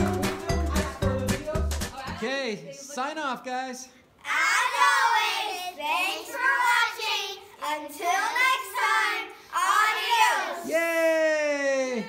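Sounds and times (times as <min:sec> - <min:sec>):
girls chanting together: 0:04.2 - 0:10.7.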